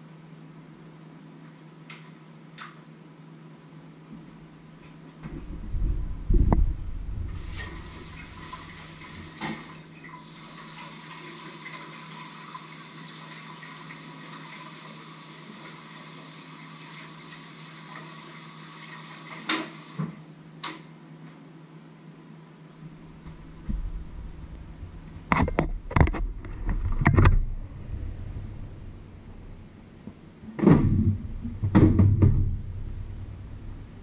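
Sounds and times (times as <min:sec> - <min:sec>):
loud bump: 0:23.1 - 0:34.0.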